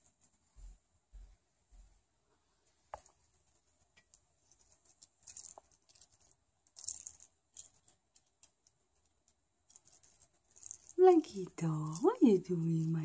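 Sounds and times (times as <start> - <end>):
small metal bells jingling: 4.5 - 8.4, 9.7 - 13.0.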